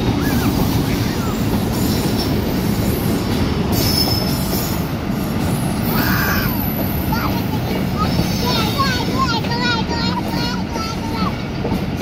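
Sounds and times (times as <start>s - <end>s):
train wheels rumbling and rattling: 0.0s - 12.0s
high wheel squeal: 0.2s - 7.1s.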